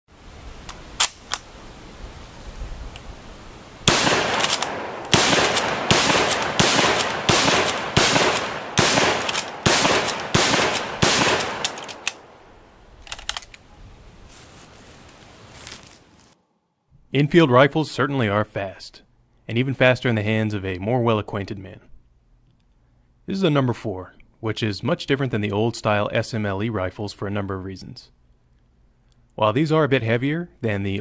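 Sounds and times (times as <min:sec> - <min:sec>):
light rifle clicks: 0:00.6 - 0:01.5, 0:03.9 - 0:12.4, 0:13.0 - 0:13.7
rifle shots with echo: 0:03.8 - 0:12.4.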